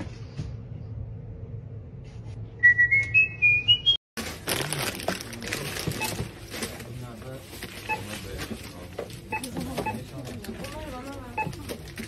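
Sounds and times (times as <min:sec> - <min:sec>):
plastic bag rustling: 0:04.2 - 0:08.8.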